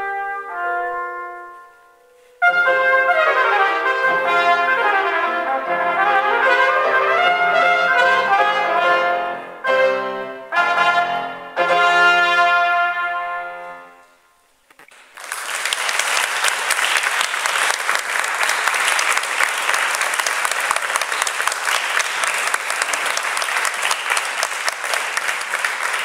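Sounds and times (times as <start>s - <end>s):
trumpet note with piano: 0.0s - 14.4s
audience applauding: 14.9s - 26.0s.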